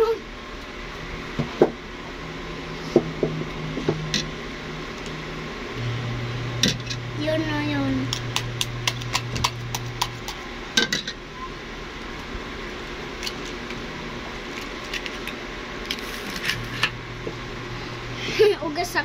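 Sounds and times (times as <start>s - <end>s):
egg shell clicks: 8.1s - 10.4s.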